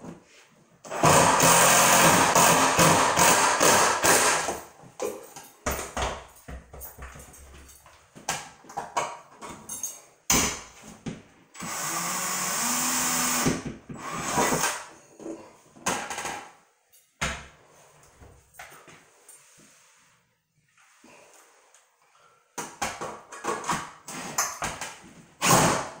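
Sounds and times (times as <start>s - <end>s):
cordless drill driving a screw: 0.9s - 4.5s, 11.6s - 14.8s.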